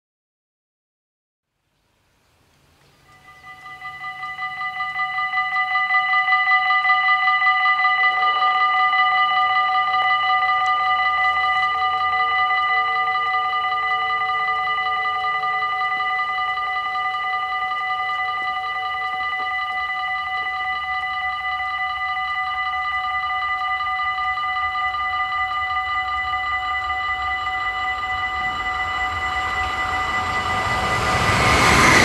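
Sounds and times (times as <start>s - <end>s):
level crossing warning bells: 3.0s - 32.0s
barrier arms lowering whine: 13.4s - 32.0s
train rumble: 24.6s - 32.0s.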